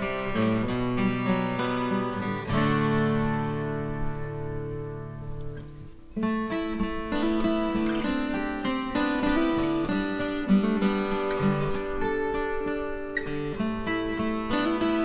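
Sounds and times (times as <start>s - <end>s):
acoustic guitar playing chords: 0.0s - 15.0s.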